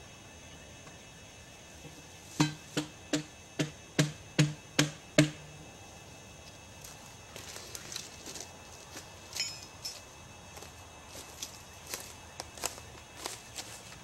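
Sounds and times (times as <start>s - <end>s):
hammer blows ringing: 2.4s - 5.4s.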